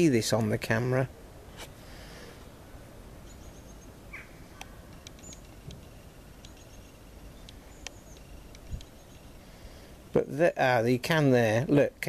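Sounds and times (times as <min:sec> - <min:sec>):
small birds chirping: 0:01.0 - 0:12.0
soft clicks: 0:04.6 - 0:06.7, 0:07.4 - 0:09.0.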